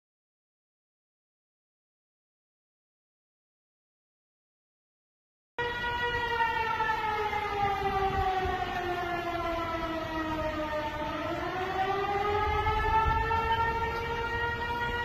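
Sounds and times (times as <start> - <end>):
tornado warning siren: 5.6 - 15.0.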